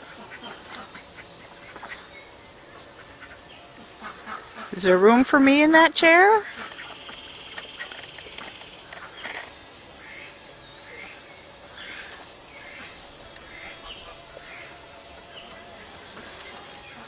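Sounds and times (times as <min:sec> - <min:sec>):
steady high hiss: 0:00.0 - 0:17.0
chickens and ducks calling: 0:03.0 - 0:04.7, 0:10.0 - 0:17.0.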